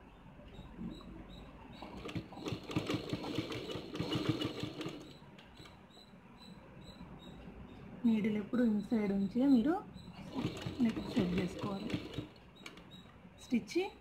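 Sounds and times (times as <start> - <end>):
sewing machine stitching: 1.8 - 5.2, 10.1 - 12.9.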